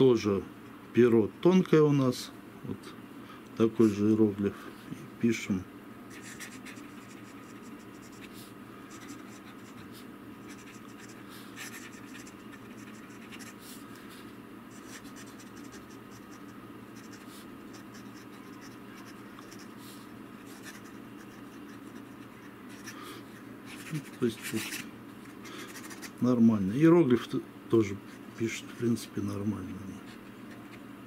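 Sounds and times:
steady low hum: 0:00.0 - 0:31.0
fountain pen scratching paper: 0:06.1 - 0:13.6, 0:14.7 - 0:19.8, 0:20.4 - 0:23.0, 0:23.7 - 0:24.8, 0:25.4 - 0:26.2, 0:30.0 - 0:30.8.

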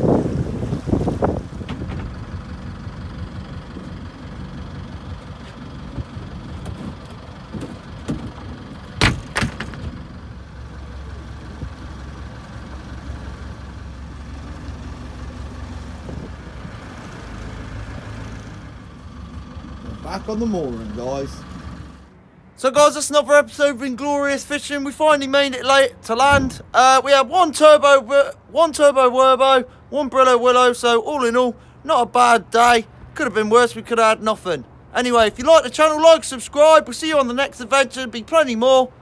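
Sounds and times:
boat engine humming: 0:00.0 - 0:39.0
sharp knocks: 0:06.6 - 0:10.0.

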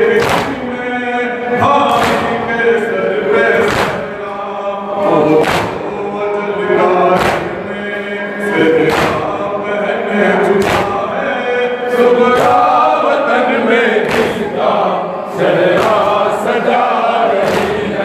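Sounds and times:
men chanting a lament in chorus: 0:00.0 - 0:18.0
hands slapping on chests: 0:00.2 - 0:00.6, 0:02.0 - 0:02.3, 0:03.6 - 0:04.1, 0:05.4 - 0:05.8, 0:07.2 - 0:07.5, 0:08.9 - 0:09.3, 0:10.6 - 0:11.0, 0:14.0 - 0:14.5, 0:15.7 - 0:16.2, 0:17.4 - 0:17.9.

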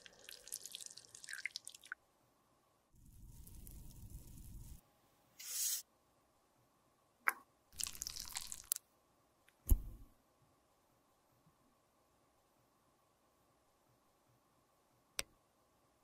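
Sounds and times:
short hiss: 0:05.4 - 0:05.8.

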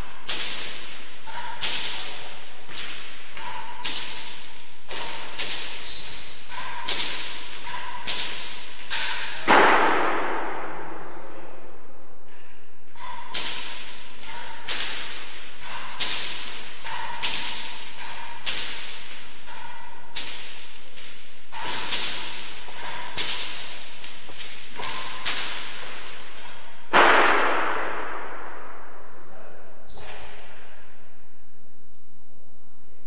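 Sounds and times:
racket striking ball: 0:00.2 - 0:05.8, 0:06.4 - 0:11.1, 0:12.9 - 0:28.8.

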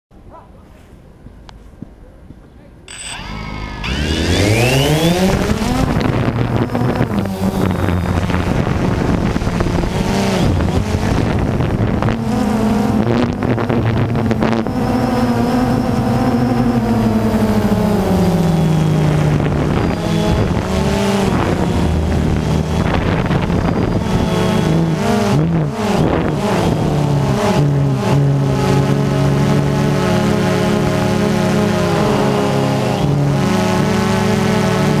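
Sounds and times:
drone propellers buzzing: 0:02.9 - 0:35.0
wind buffeting microphone: 0:03.9 - 0:29.8.

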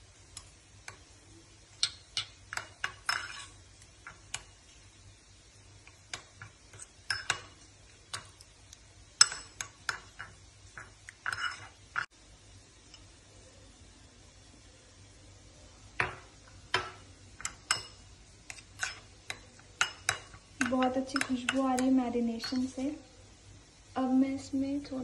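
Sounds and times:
metal spoon clinking on ceramic bowl: 0:01.8 - 0:03.5, 0:06.1 - 0:07.5, 0:09.2 - 0:11.7, 0:16.0 - 0:22.7.

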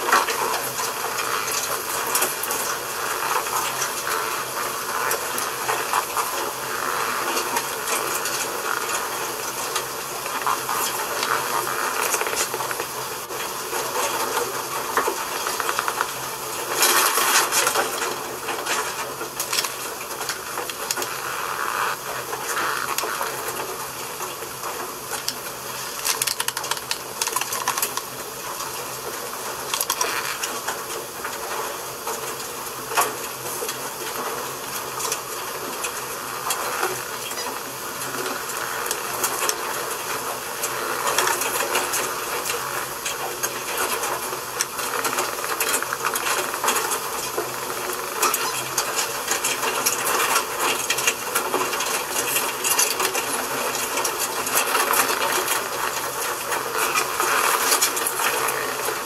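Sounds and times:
steady hiss: 0:00.0 - 0:59.0
small clicks: 0:25.2 - 0:28.1.

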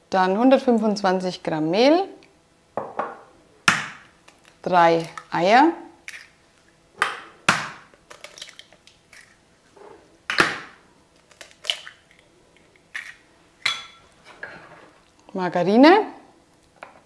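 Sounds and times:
eggs cracking on metal bowl: 0:07.0 - 0:09.4, 0:10.3 - 0:14.0.

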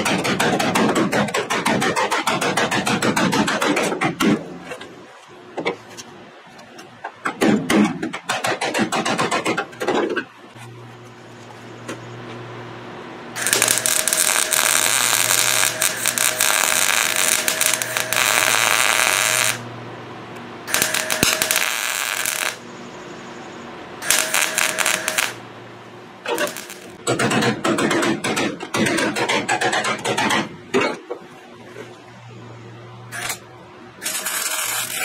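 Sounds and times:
welder crackling: 0:00.0 - 0:04.9, 0:13.4 - 0:19.7, 0:20.6 - 0:22.7, 0:24.0 - 0:25.4, 0:26.2 - 0:30.5, 0:34.0 - 0:35.0
low steady hum: 0:10.4 - 0:27.6, 0:30.4 - 0:35.0.

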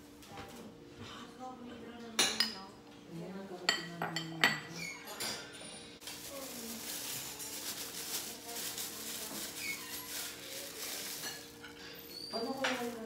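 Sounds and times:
metal spoon clinking on bowls: 0:03.7 - 0:05.9, 0:11.0 - 0:12.8
plastic gloves crinkling: 0:06.0 - 0:13.0.

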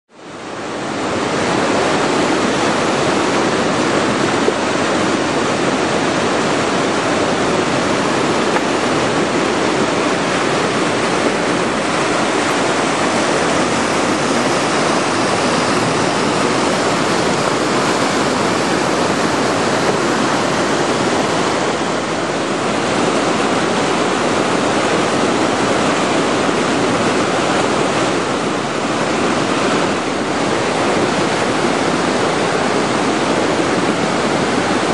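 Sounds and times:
water rushing over rocks: 0:00.2 - 0:34.9.

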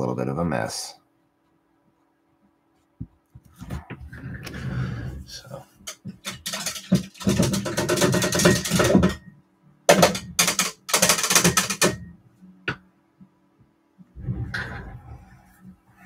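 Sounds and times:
rapid rattling clicks: 0:05.8 - 0:09.2, 0:09.9 - 0:12.0.

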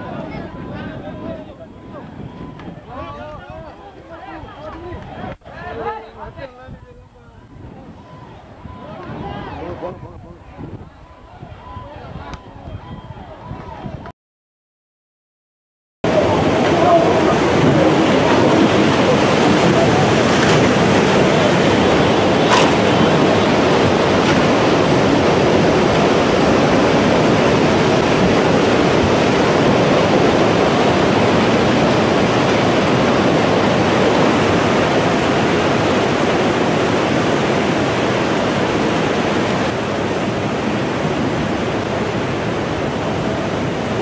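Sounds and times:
seawater rushing: 0:16.1 - 0:44.0.

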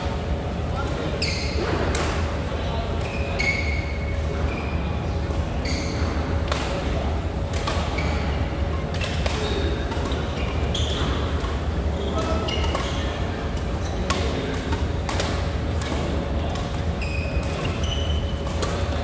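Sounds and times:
steady low hum: 0:00.0 - 0:19.0
short high squeaks: 0:01.2 - 0:01.7, 0:03.1 - 0:04.9, 0:17.0 - 0:18.9
rackets hitting shuttlecocks: 0:06.4 - 0:19.0.

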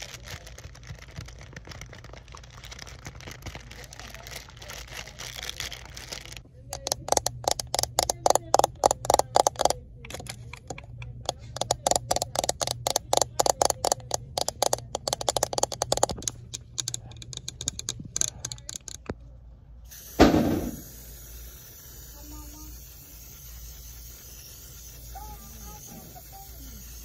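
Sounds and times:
fingernails tapping on plastic: 0:06.8 - 0:19.1
loud thump: 0:20.2 - 0:20.9.

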